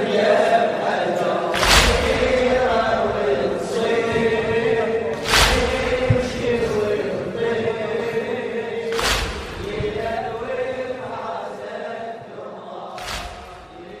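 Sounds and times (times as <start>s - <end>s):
men chanting a lament in chorus: 0.0s - 14.0s
group chest-beating strikes: 1.5s - 7.6s, 8.9s - 11.0s, 13.0s - 14.0s.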